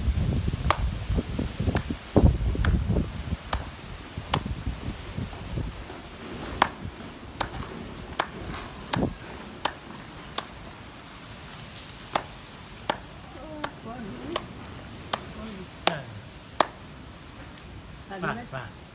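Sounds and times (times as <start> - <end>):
hands tapping together: 6.5 - 10.6, 11.8 - 16.8.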